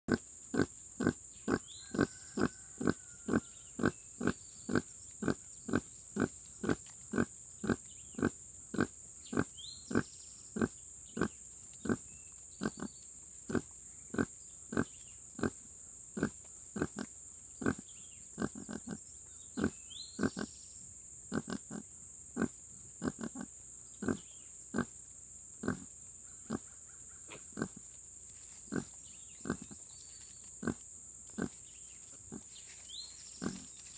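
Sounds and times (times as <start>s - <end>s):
sow grunting: 0.1s - 15.6s, 16.2s - 19.0s, 19.6s - 20.6s, 21.3s - 21.8s, 22.4s - 24.9s, 25.6s - 25.9s, 27.3s - 27.8s, 28.7s - 29.8s.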